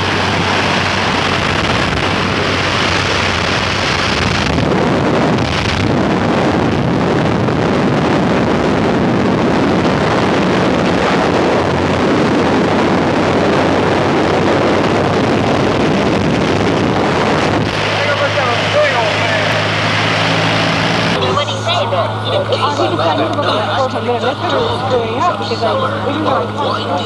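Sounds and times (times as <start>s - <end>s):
wind rushing through open door: 0.0s - 21.2s
aircraft engine drone: 0.0s - 27.0s.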